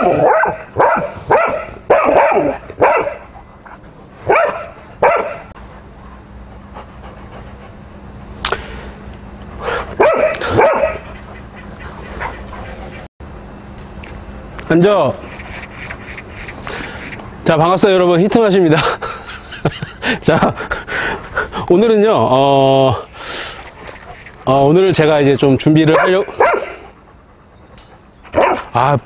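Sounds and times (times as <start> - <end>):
dog barking: 0.0 - 3.4, 4.2 - 5.5, 10.0 - 11.3, 25.9 - 27.0, 28.3 - 28.7.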